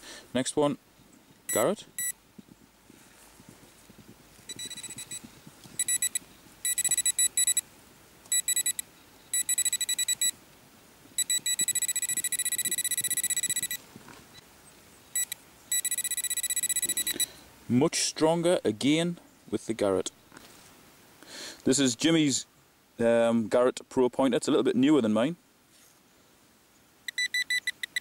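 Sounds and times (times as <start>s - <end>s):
rapid pulsed beeping: 1.5s - 2.2s, 4.5s - 7.6s, 8.3s - 10.4s, 11.2s - 13.8s, 15.2s - 17.3s, 27.1s - 28.0s.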